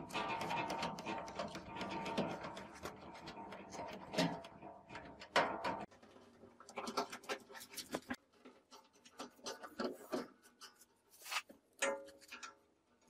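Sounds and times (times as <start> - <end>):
gloved hands scratching metal: 9.4 - 12.5.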